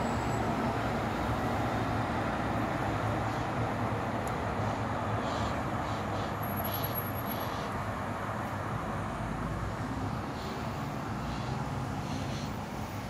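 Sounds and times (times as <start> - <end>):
distant road traffic hum: 0.0 - 13.0.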